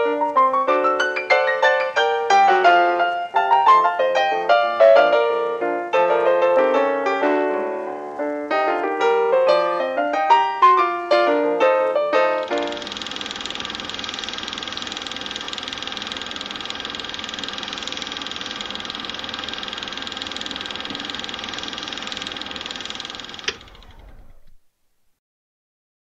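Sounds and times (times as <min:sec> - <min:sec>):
machine click: 0:12.4 - 0:24.6
small machine clattering and whining: 0:12.4 - 0:24.6.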